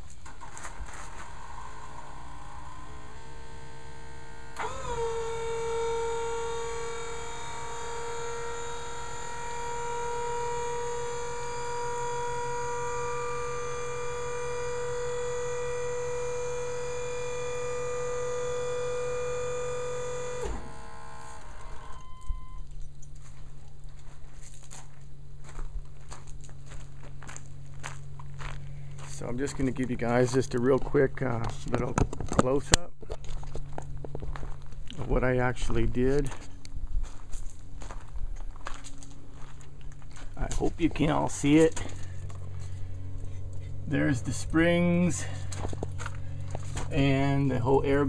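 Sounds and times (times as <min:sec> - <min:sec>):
footsteps crunching on gravel: 0:00.0 - 0:01.3, 0:22.7 - 0:47.7
hydraulic pump motor whine: 0:00.0 - 0:23.1, 0:38.1 - 0:48.0.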